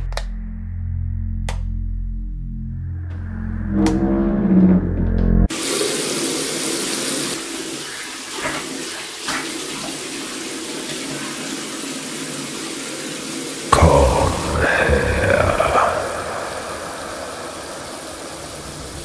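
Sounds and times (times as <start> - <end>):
running water: 5.5 - 19.0.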